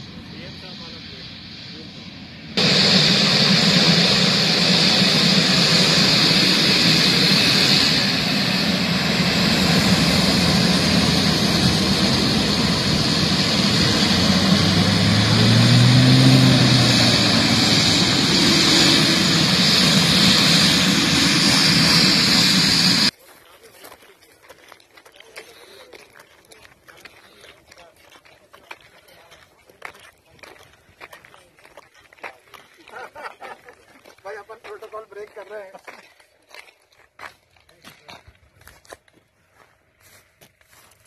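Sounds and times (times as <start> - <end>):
propeller drone: 0.0 - 23.1
turbine whine: 0.0 - 23.1.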